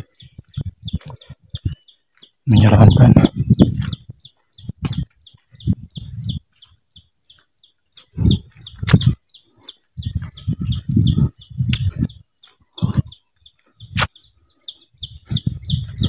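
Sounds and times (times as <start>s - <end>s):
high-pitched insect drone: 0.0s - 13.3s
birds chirping: 0.0s - 16.0s
low thumps and rumbles: 2.6s - 6.4s, 8.1s - 9.2s, 10.0s - 13.1s, 15.0s - 16.0s.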